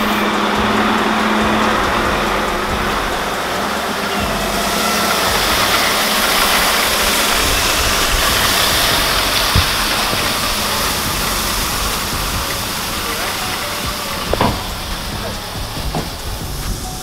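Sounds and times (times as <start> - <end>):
diesel truck engine running: 0.0 - 17.0
short thump: 14.2 - 16.3.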